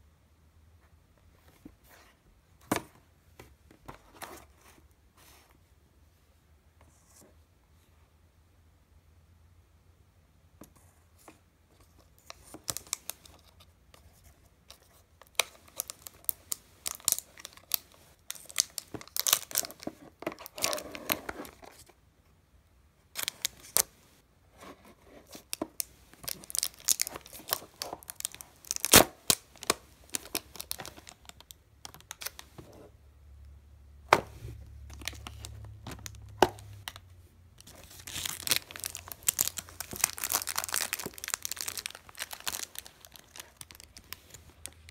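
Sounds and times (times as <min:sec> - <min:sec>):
cellophane and cardboard tearing: 0:15.3 - 0:21.6, 0:26.2 - 0:31.3, 0:37.6 - 0:44.9.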